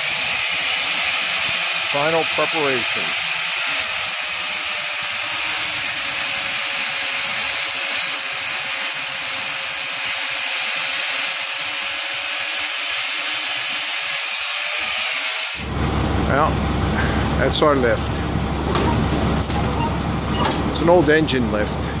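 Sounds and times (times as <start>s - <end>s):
angle grinder cutting steel: 0.0s - 15.7s.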